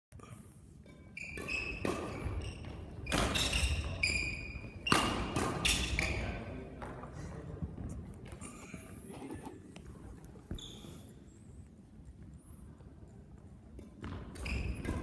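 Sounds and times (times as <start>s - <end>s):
rackets hitting shuttlecock: 0.8s - 7.0s, 13.5s - 15.0s
sneakers squeaking on court: 0.9s - 7.0s, 10.2s - 11.3s, 14.0s - 15.0s.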